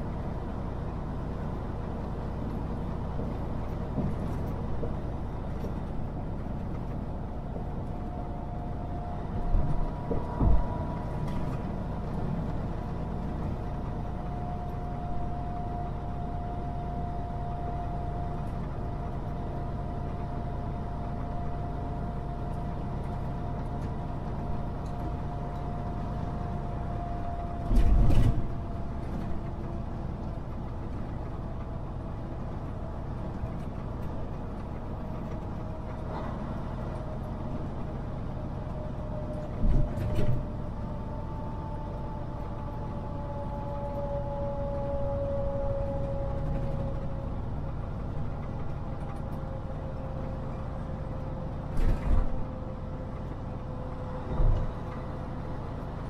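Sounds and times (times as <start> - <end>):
truck engine and road rumble: 0.0 - 56.0.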